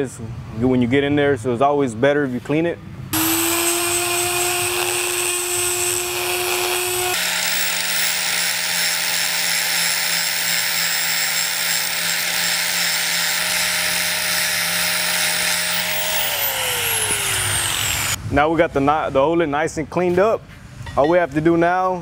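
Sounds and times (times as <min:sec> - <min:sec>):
angle grinder grinding: 0:03.2 - 0:18.2
die grinder whining: 0:03.2 - 0:18.2.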